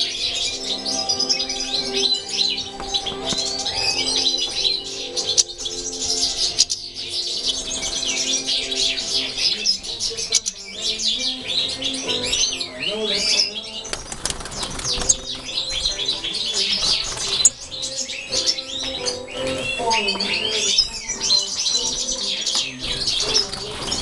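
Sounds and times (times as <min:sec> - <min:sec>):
birds twittering and chirping: 0:00.0 - 0:24.0.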